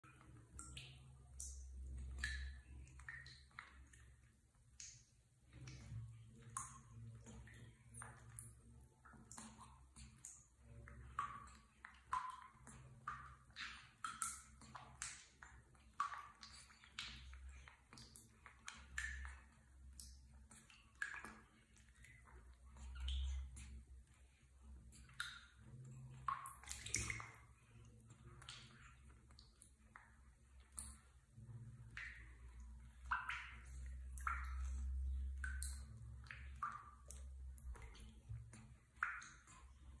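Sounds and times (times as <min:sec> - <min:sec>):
water splashing in plastic tub: 0:00.0 - 0:40.0.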